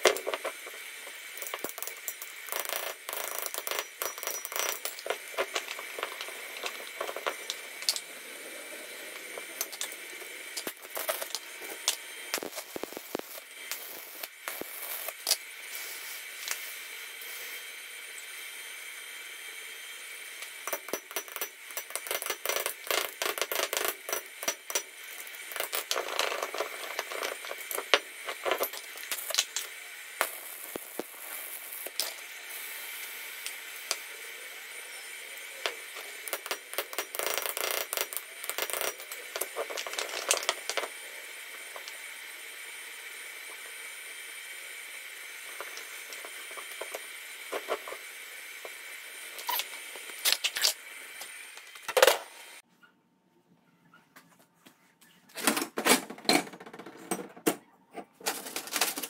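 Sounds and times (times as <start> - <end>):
steel parts clinking on concrete: 0.0 - 8.2, 20.6 - 32.2.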